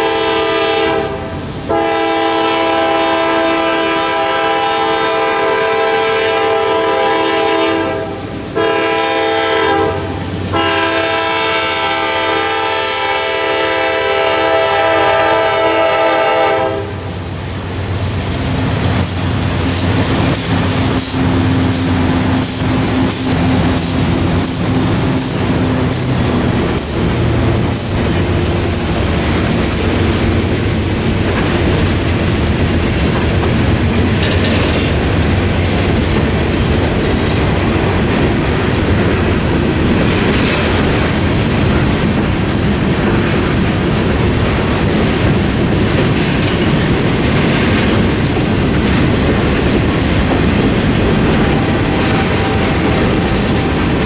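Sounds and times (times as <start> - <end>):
locomotive horn blasts: 0.0 - 17.0, 51.2 - 54.0
diesel engines rumbling: 13.2 - 54.0.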